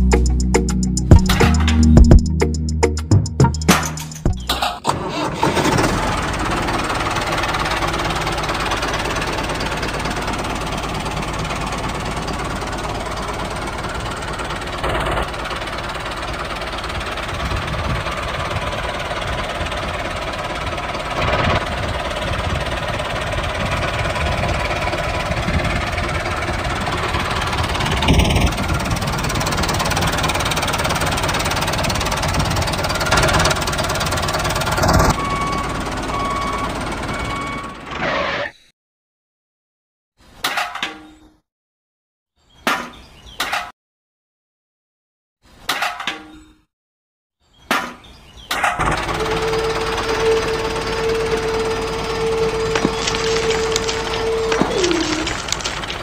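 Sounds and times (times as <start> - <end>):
tractor engine knocking: 5.5 - 37.6, 48.7 - 56.0.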